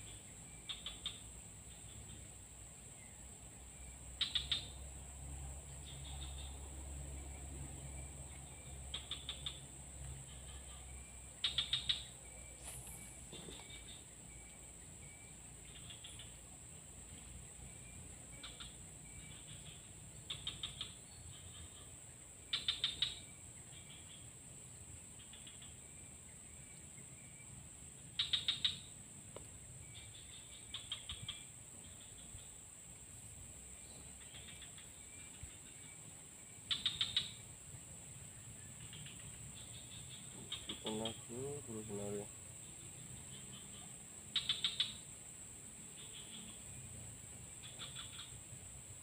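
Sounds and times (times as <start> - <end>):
faint chirps: 0.0 - 49.0
rapid bird chattering: 0.6 - 2.2, 4.2 - 4.7, 8.9 - 9.7, 10.3 - 14.1, 15.6 - 16.4, 18.4 - 21.9, 22.5 - 24.2, 28.2 - 28.9, 30.0 - 32.5, 36.6 - 37.4, 38.8 - 45.1, 47.6 - 48.4
high-pitched insect drone: 29.8 - 49.0.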